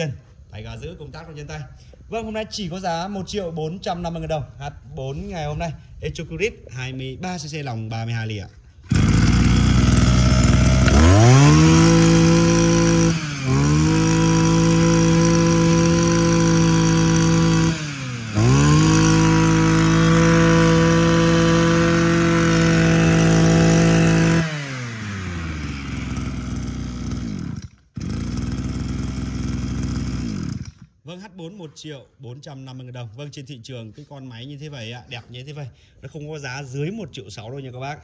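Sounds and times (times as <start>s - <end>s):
brush cutter engine revving: 8.8s - 31.0s.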